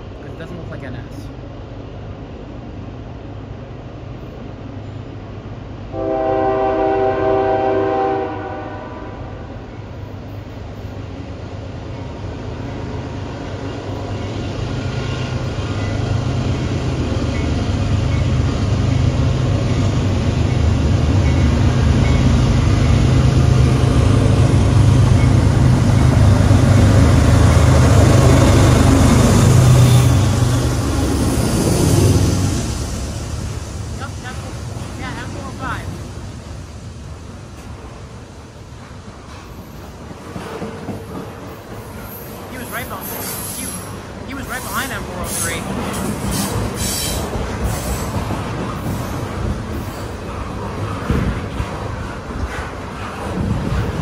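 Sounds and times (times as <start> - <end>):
freight train rumbling past: 0.0 - 54.0
train horn chord: 5.9 - 9.5.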